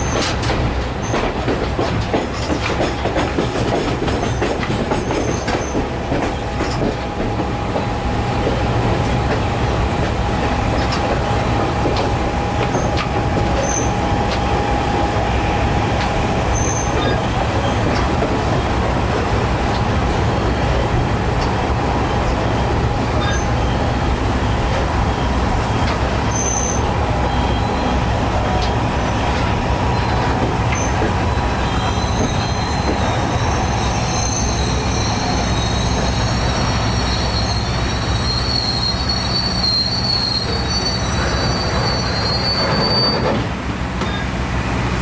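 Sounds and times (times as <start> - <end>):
train wheels rumbling on track: 0.0 - 45.0
high wheel squeal: 12.7 - 14.8, 16.5 - 18.0, 23.1 - 44.4.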